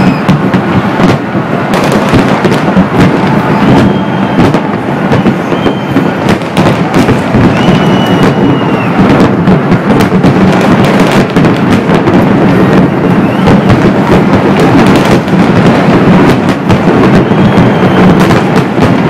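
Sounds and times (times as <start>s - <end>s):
fireworks crackling and banging: 0.0s - 19.0s.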